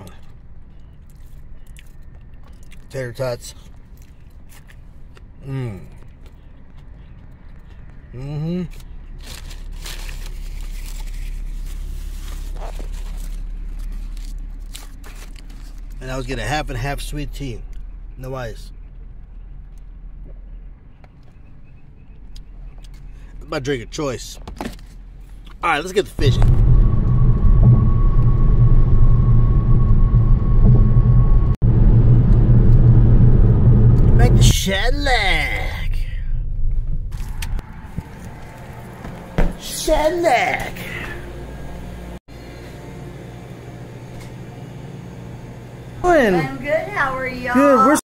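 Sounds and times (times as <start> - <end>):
car road and wind rumble: 0.0 - 39.7
car cabin hum: 26.0 - 35.8.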